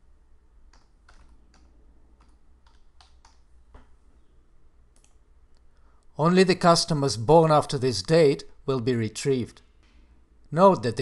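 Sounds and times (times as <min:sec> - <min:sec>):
computer keyboard typing: 0:00.7 - 0:03.5.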